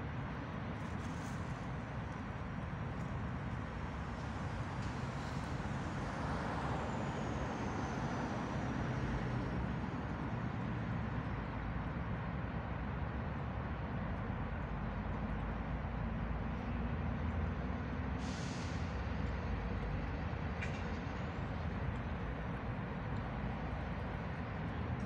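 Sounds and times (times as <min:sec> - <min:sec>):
short hiss: 0:18.2 - 0:19.0
low outdoor rumble: 0:19.0 - 0:25.0.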